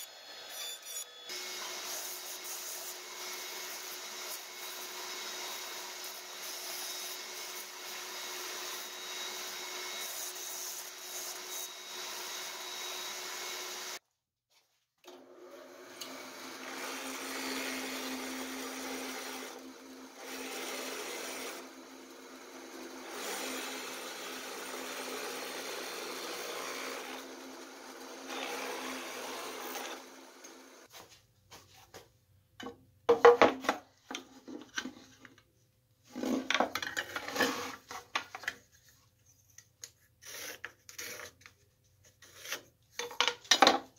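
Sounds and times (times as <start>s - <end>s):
bandsaw cutting wood: 0.0s - 14.0s, 15.1s - 30.9s
drill press boring into wood: 15.9s - 30.9s
tools and wood clattering: 32.6s - 35.4s, 36.1s - 38.8s, 42.9s - 43.9s.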